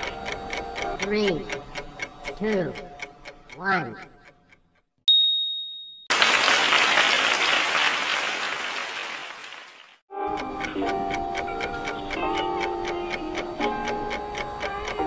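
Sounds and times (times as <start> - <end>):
high ding: 5.1 - 6.1
recorded applause: 6.1 - 10.0.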